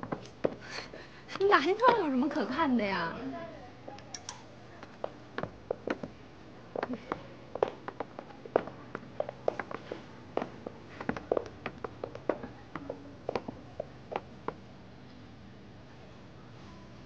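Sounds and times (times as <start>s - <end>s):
high-heeled footsteps on hard floor: 0.0s - 0.6s, 4.8s - 14.6s.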